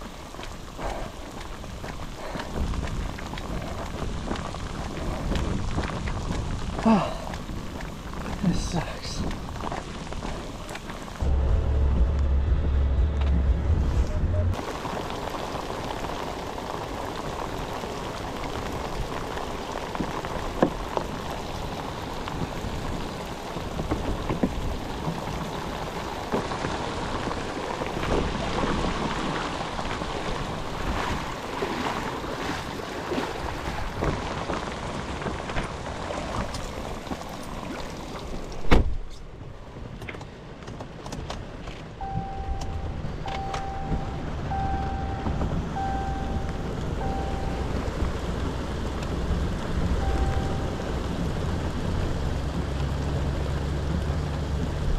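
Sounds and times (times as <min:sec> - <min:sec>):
steady rain falling: 0:00.0 - 0:11.3, 0:14.5 - 0:38.7, 0:39.5 - 0:54.9
short beeps: 0:42.0 - 0:47.8, 0:50.0 - 0:50.9.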